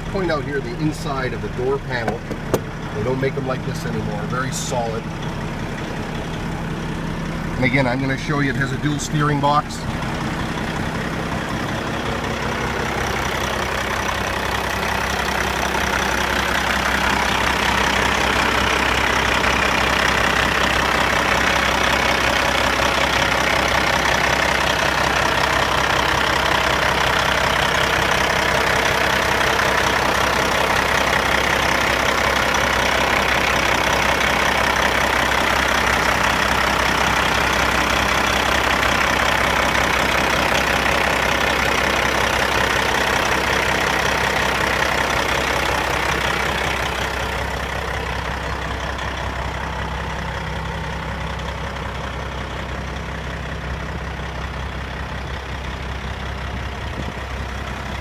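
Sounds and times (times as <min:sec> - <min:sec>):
diesel truck idling: 0:00.0 - 0:58.0.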